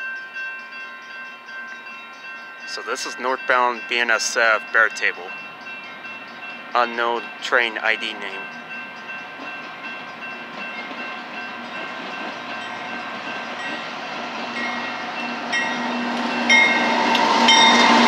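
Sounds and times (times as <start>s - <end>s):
crossing bell ringing: 0.0s - 18.0s
diesel freight train running: 1.5s - 18.0s.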